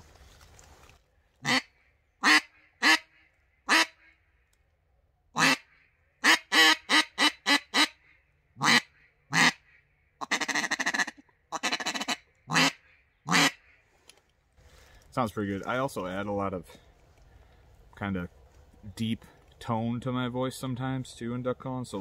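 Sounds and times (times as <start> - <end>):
duck call quacks: 1.4 - 4.2, 5.4 - 8.0, 8.6 - 13.8.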